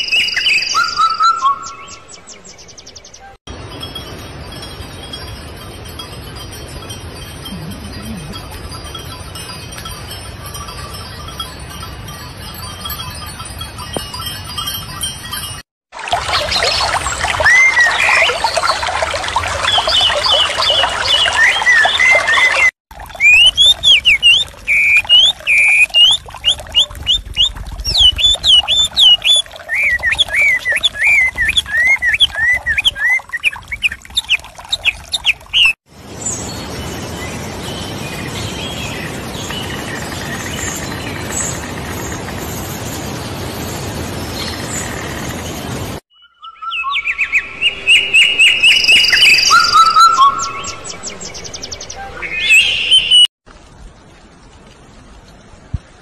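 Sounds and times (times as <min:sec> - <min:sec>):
small songbirds chirping: 0:16.3 - 0:53.3.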